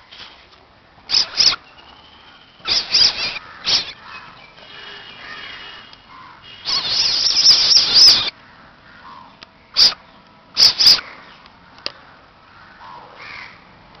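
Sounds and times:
baby civet hissing: 0:01.1 - 0:01.6, 0:02.6 - 0:04.0, 0:06.6 - 0:08.3, 0:09.8 - 0:10.0, 0:10.6 - 0:11.0.

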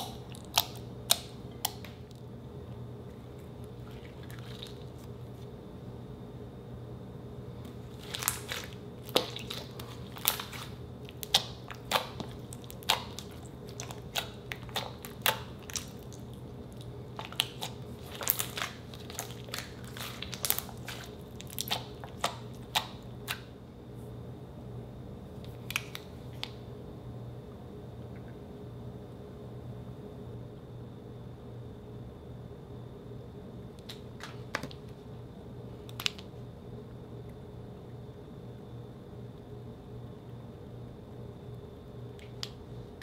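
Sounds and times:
steady low hum: 0:00.0 - 0:43.0
slime popping and squishing: 0:07.7 - 0:23.4.

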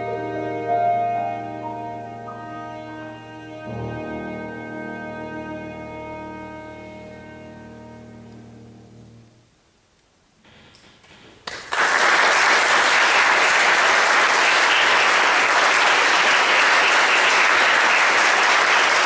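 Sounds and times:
audience applauding: 0:11.0 - 0:19.0.

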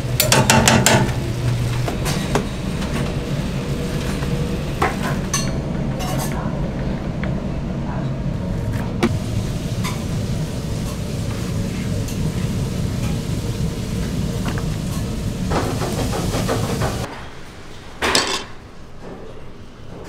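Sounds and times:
steady low rumble: 0:02.5 - 0:17.1.

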